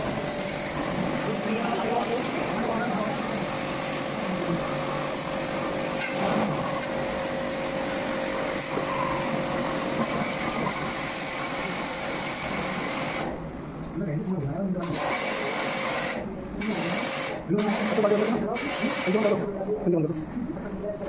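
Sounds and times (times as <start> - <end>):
pump motor humming: 0.0 - 13.4.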